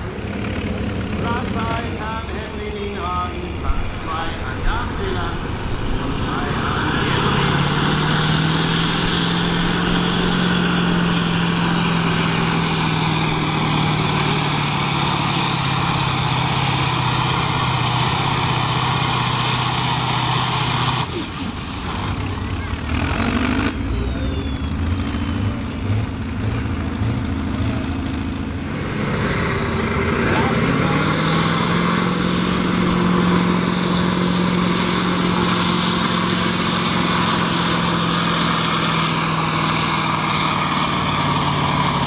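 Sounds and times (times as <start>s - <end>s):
tractor diesel engine under load: 0.0s - 42.0s
turbocharger whistle: 22.0s - 26.1s.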